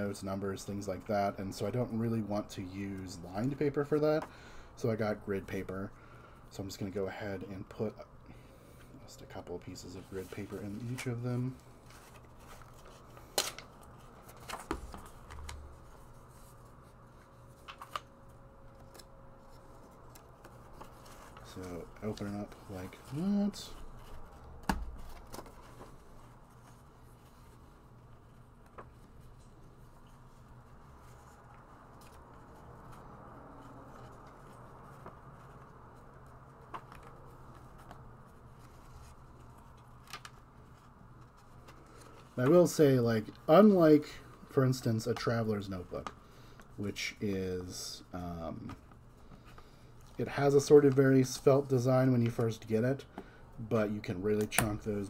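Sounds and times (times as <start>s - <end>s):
faint steady hum: 0.0s - 55.0s
paper sheets rustling: 9.7s - 53.0s
paper sheets rustling on binder rings: 9.9s - 18.1s.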